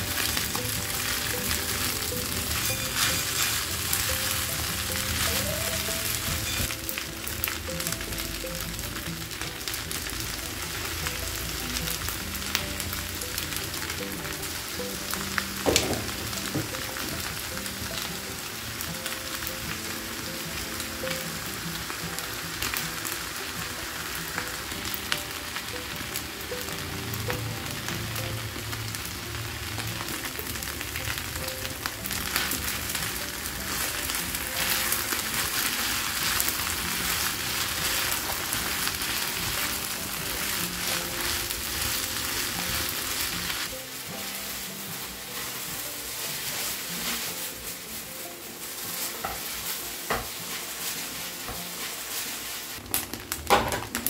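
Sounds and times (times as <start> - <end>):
rice sizzling in a wok: 0.0 - 54.0
spatula scraping a wok: 32.2 - 52.8.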